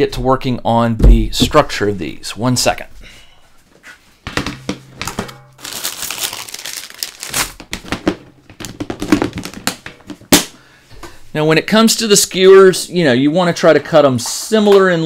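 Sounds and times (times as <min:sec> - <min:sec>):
crinkling: 0:05.0 - 0:10.6.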